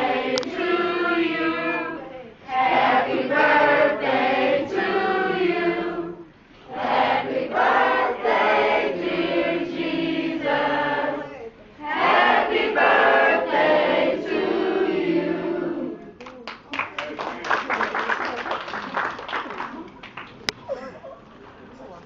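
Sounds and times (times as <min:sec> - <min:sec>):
choir singing: 0:00.0 - 0:16.1.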